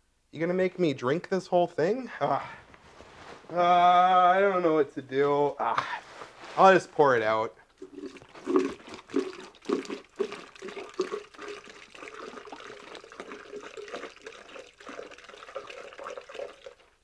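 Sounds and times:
water glugging from bottle: 0:07.8 - 0:16.9.

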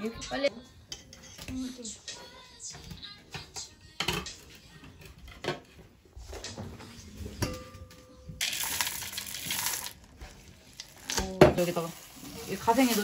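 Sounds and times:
chocolate chips rattling into bowl: 0:08.4 - 0:10.1.

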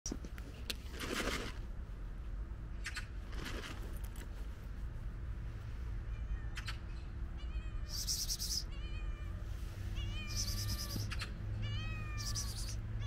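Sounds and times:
steady low rumble: 0:00.1 - 0:08.6.

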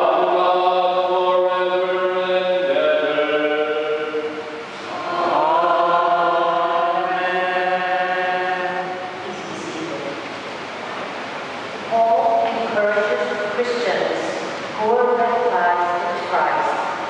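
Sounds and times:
sung liturgical chant: 0:00.0 - 0:09.8.

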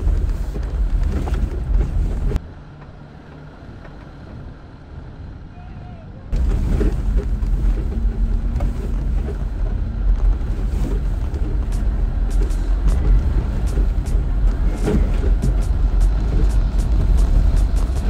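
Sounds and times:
vehicle low rumble: 0:00.0 - 0:18.0
sharp clicks and knocks: 0:06.4 - 0:18.0.

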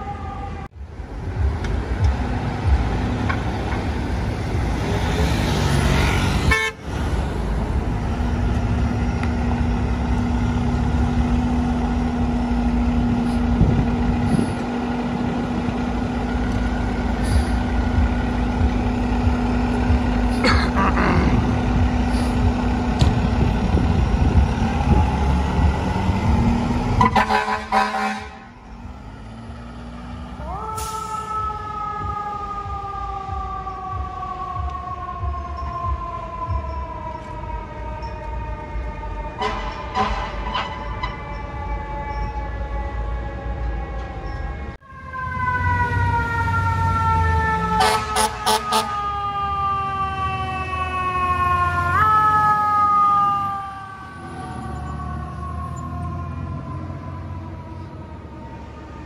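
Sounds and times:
truck horn: 0:06.4 - 0:07.0, 0:26.9 - 0:28.6, 0:39.4 - 0:41.2, 0:47.8 - 0:49.0
truck engine running: 0:06.8 - 0:31.1.

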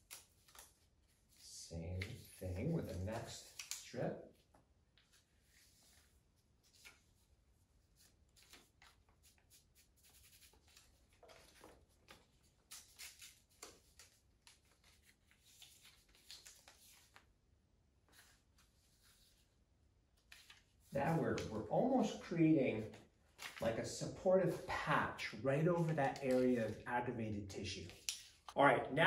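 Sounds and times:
paper backing peeled off tape: 0:25.8 - 0:26.8.

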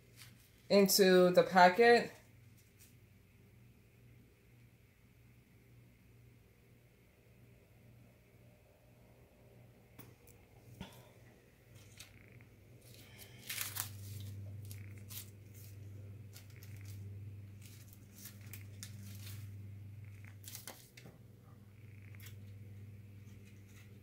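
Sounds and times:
low steady hum: 0:00.0 - 0:24.0
tissue paper rustling and crinkling: 0:12.8 - 0:19.6, 0:20.3 - 0:21.0.

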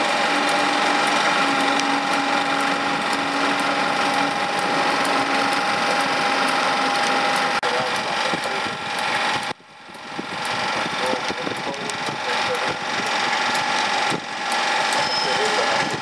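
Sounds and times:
electric train whine: 0:00.0 - 0:16.0
wheels clicking on rails: 0:00.0 - 0:16.0.

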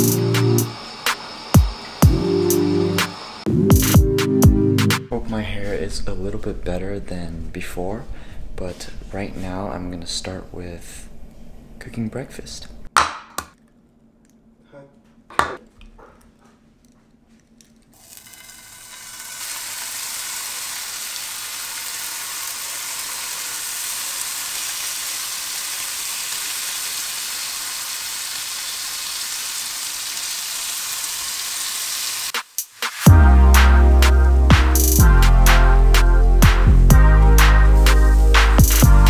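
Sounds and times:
wooden bowls knocking on counter: 0:15.3 - 0:16.2
bacon sizzling in frying pan: 0:18.0 - 0:33.0.

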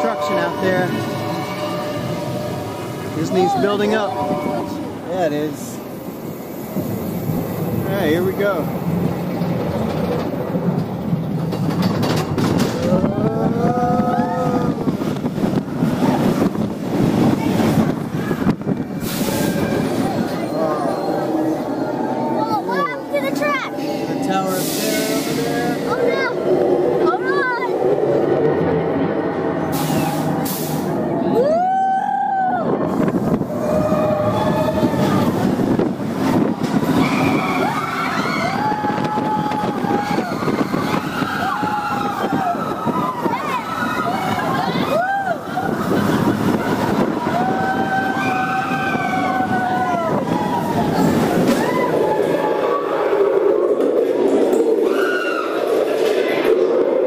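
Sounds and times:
roller coaster rumbling on track: 0:00.0 - 0:57.0
drawn-out pitched wail: 0:12.7 - 0:15.1, 0:31.2 - 0:32.8, 0:33.5 - 0:35.5, 0:36.9 - 0:54.0, 0:54.8 - 0:55.8
rush of air: 0:29.6 - 0:31.2
riders screaming: 0:36.8 - 0:53.6, 0:54.8 - 0:55.8.

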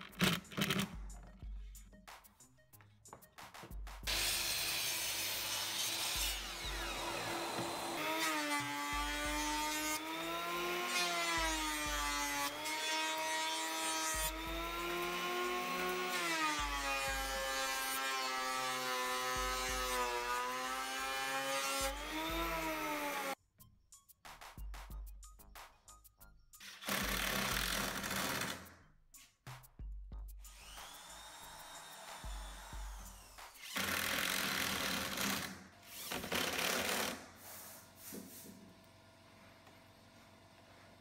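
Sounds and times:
miter saw cutting wood: 0:04.1 - 0:23.4, 0:30.6 - 0:37.2
planer machine planing wood: 0:04.1 - 0:23.4.

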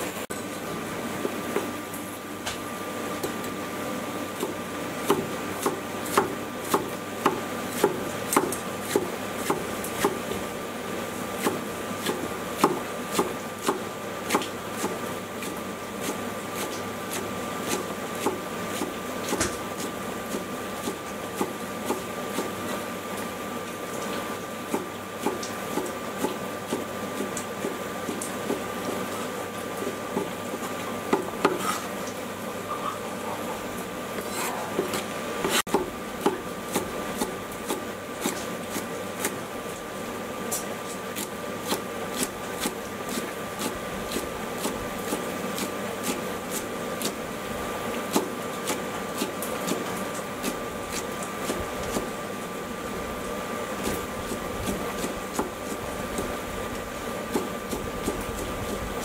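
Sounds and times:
cleaver chopping on wooden board: 0:31.1 - 0:31.7, 0:34.8 - 0:38.4, 0:48.1 - 0:49.8, 0:54.6 - 0:55.6.

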